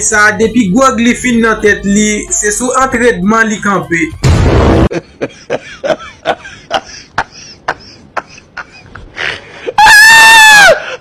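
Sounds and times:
high-pitched yell: 9.8 - 10.9.

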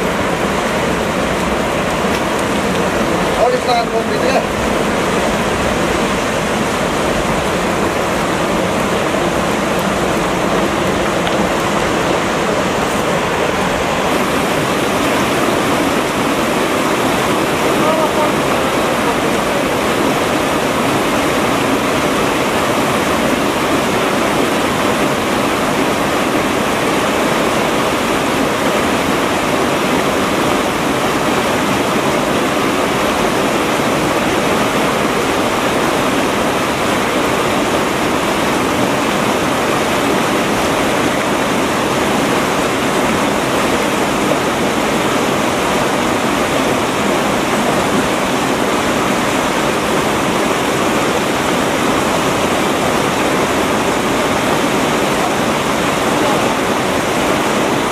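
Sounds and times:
river rushing over rocks: 0.0 - 57.9.

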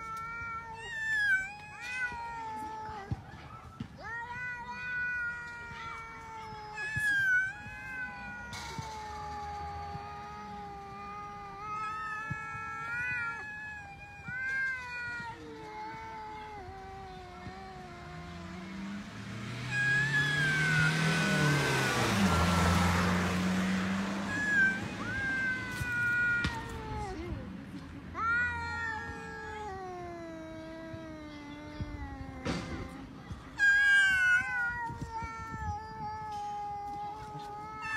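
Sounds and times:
cats yowling: 0.0 - 27.4, 28.1 - 37.9
passing vehicle rushing: 17.7 - 28.2.

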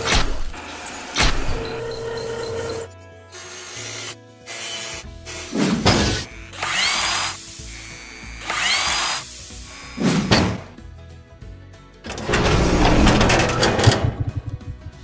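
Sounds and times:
music: 0.0 - 15.0
metal clank: 12.1 - 14.6.

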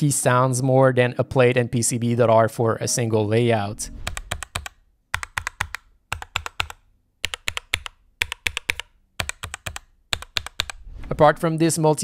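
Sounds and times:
mechanical keyboard typing: 4.0 - 10.8.

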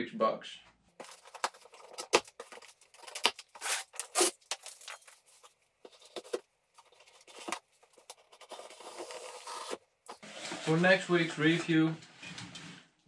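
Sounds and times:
blade slitting packing tape: 3.0 - 4.7.

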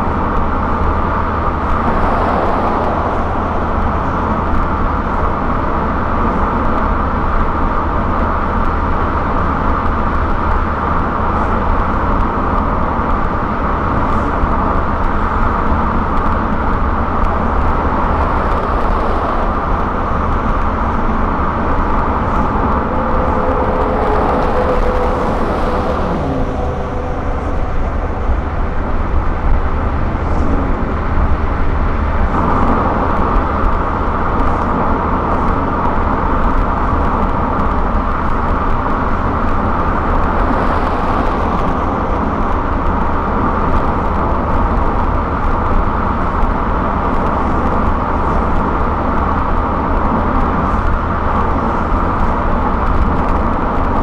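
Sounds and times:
car engine hum: 0.0 - 54.0
tyre roar: 1.4 - 5.7
tone sliding down in pitch: 21.6 - 30.0.

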